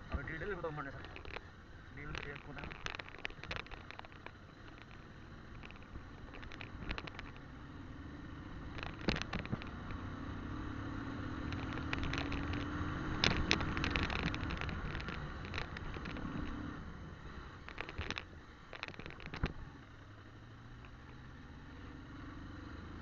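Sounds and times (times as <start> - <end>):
motorcycle engine running: 0.0 - 23.0
knocks and rattles from bumps: 0.1 - 7.4, 8.6 - 10.1, 11.2 - 16.6, 17.6 - 19.6.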